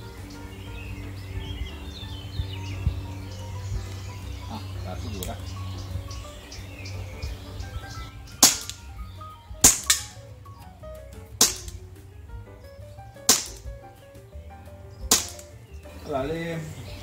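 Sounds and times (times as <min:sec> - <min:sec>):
airsoft pistol shots: 0:08.4 - 0:08.8, 0:09.6 - 0:10.2, 0:11.4 - 0:11.8, 0:13.3 - 0:13.7, 0:15.1 - 0:15.5.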